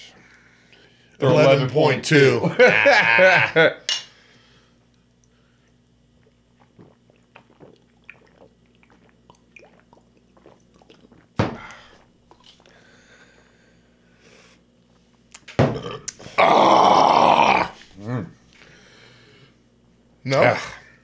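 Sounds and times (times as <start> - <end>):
people gulping from bottles: 6.1 - 12.7, 15.7 - 17.8.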